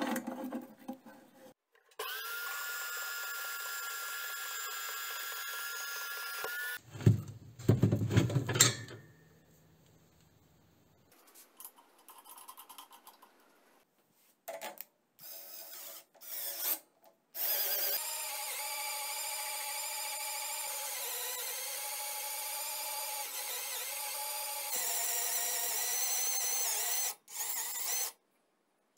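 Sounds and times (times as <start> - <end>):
cordless drill whining: 15.2 - 16.8, 17.4 - 28.2.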